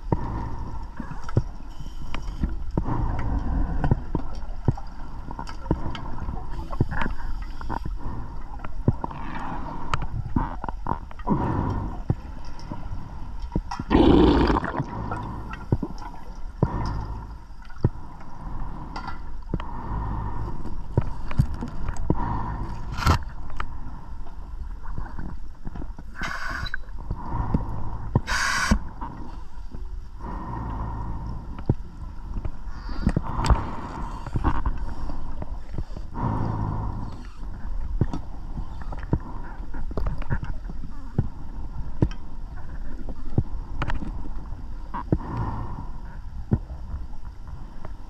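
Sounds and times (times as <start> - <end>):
gurgling exhaled bubbles: 13.9 - 17.4
regulator inhalation hiss: 28.2 - 28.8.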